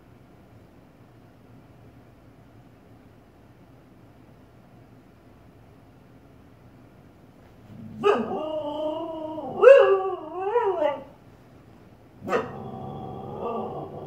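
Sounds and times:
dog barking: 8.0s - 8.4s, 12.2s - 12.7s
dog howling: 8.0s - 11.2s, 12.2s - 14.0s.

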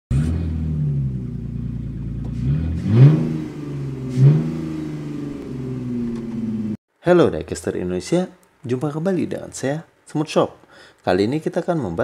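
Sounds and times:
car engine revving: 0.1s - 6.8s.

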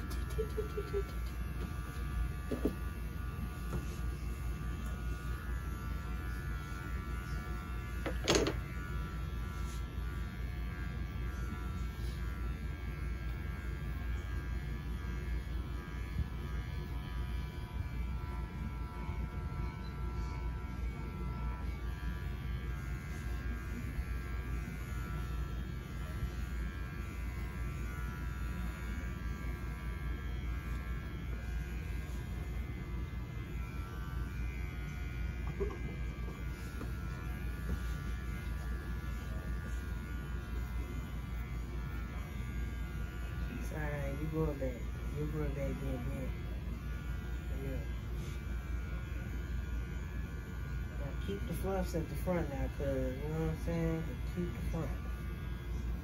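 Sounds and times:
electric hair clippers running: 0.0s - 56.0s.

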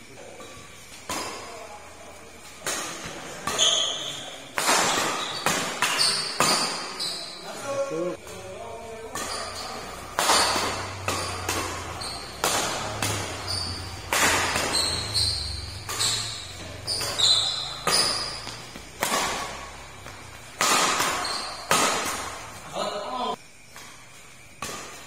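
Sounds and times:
rackets striking shuttlecock: 0.4s - 1.6s, 2.6s - 7.3s, 9.0s - 22.8s, 24.6s - 25.0s.

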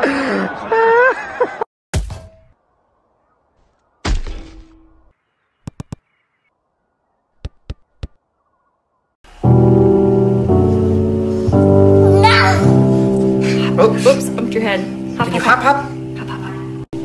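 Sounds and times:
sharp taps: 5.6s - 6.1s, 7.4s - 8.2s.

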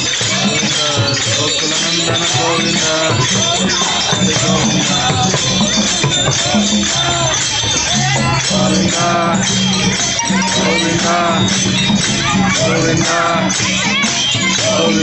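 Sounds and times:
hand cymbals: 0.0s - 15.0s
jingling tambourine: 0.0s - 15.0s
voices singing a melody: 0.0s - 15.0s
sustained low notes: 2.6s - 13.6s.

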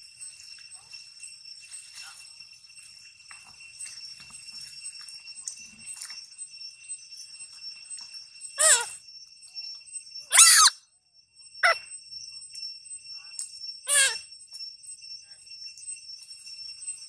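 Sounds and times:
monkey screeching: 8.6s - 9.0s, 10.3s - 10.8s, 13.9s - 14.2s.

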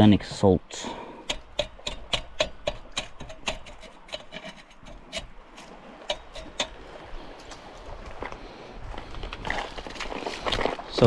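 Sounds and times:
light rubbing: 1.2s - 8.1s.

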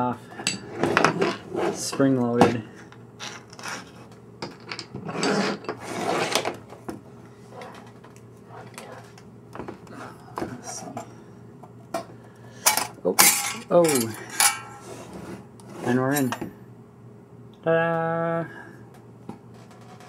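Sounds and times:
metal scraping on metal: 5.0s - 6.5s, 13.2s - 16.3s.

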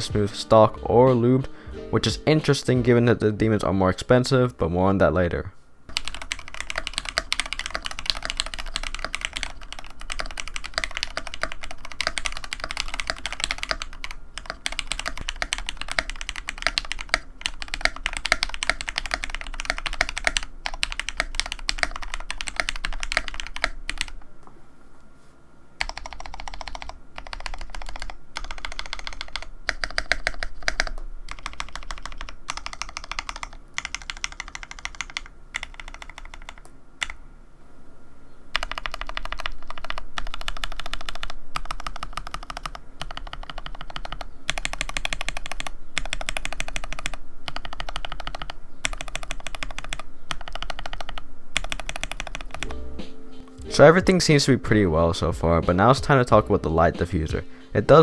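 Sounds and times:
fast typing on mechanical keyboard: 5.9s - 24.2s, 25.8s - 37.2s, 38.5s - 52.7s.

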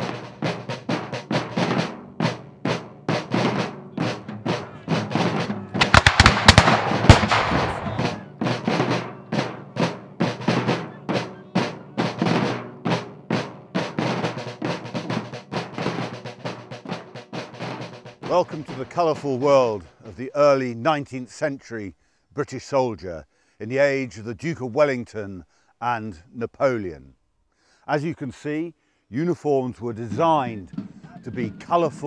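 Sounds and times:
drumming steady beat: 0.0s - 21.3s, 29.6s - 32.0s.

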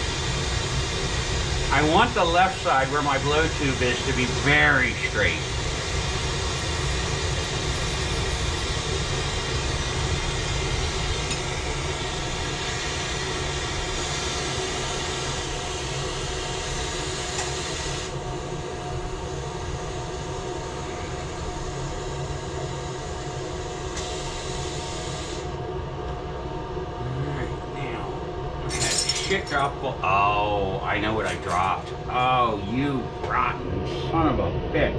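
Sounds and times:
torch burning with roaring hiss: 0.0s - 25.8s
constant hum: 0.0s - 34.9s.

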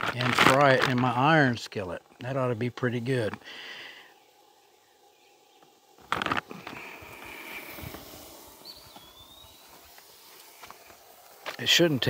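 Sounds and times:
whistled bird call: 8.6s - 9.9s.

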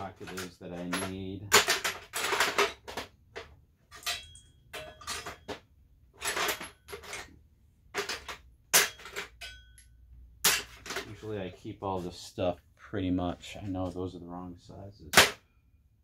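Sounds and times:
metal tools clinking and clattering: 0.0s - 11.3s.

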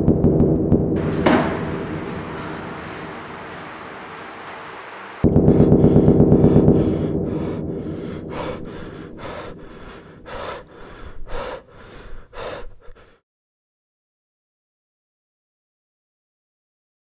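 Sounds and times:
rapidly pulsing low sound: 0.0s - 11.6s
person gasping for breath: 5.5s - 13.2s.

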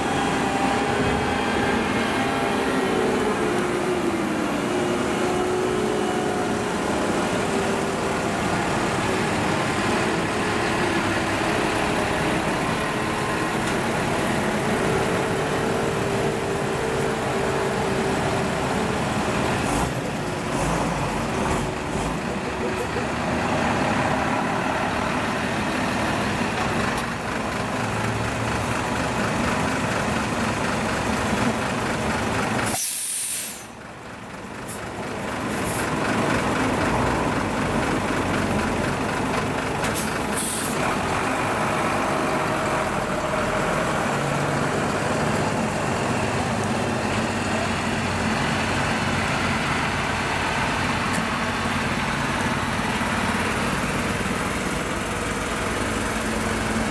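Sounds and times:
diesel trucks driving past: 0.0s - 56.9s
air brake hisses: 32.6s - 33.8s, 40.0s - 40.8s.

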